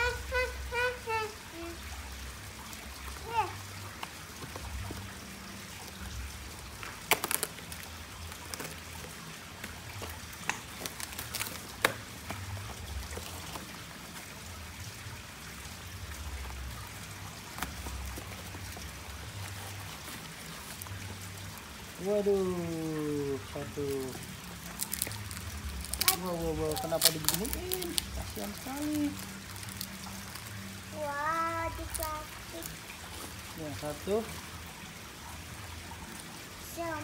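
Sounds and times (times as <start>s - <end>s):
water trickling into pond: 0.0s - 37.0s
plastic wrapping crackling: 5.8s - 14.0s, 16.4s - 30.9s, 31.6s - 34.0s.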